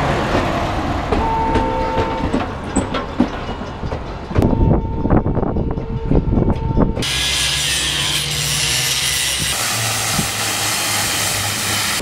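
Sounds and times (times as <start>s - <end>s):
metallic knocks and clanks: 1.1s - 4.8s.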